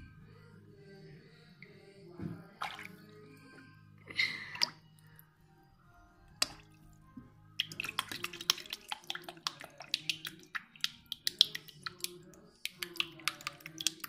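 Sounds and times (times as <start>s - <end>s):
water splashing and dripping: 2.6s - 3.0s, 6.4s - 6.9s, 7.6s - 14.0s.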